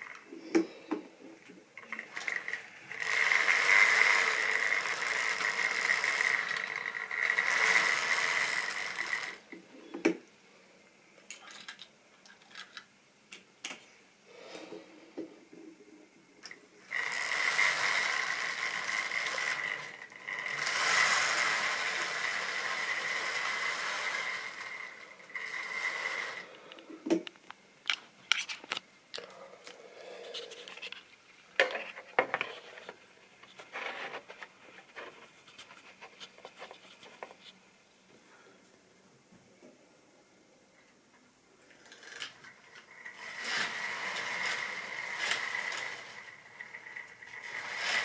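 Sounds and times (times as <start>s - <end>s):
model train whirring and whining: 1.8s - 9.4s, 16.8s - 26.6s, 41.8s - 48.0s.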